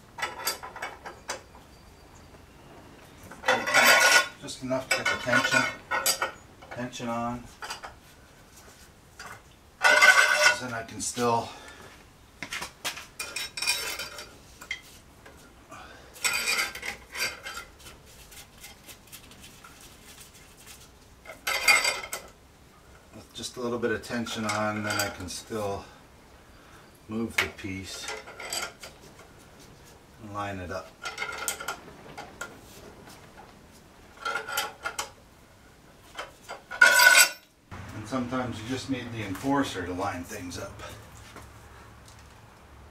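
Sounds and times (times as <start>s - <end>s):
metal clamps clinking: 3.3s - 6.9s, 9.2s - 10.7s, 16.2s - 17.7s, 21.3s - 22.3s, 24.2s - 25.4s, 27.4s - 29.0s, 34.2s - 35.2s, 36.1s - 37.5s.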